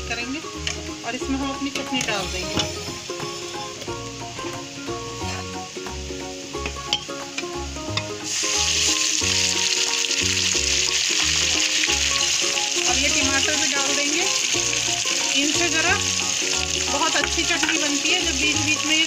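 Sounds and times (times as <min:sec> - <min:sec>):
onions sizzling in oil: 0:00.0 - 0:19.0
paste poured into hot oil: 0:08.2 - 0:12.8.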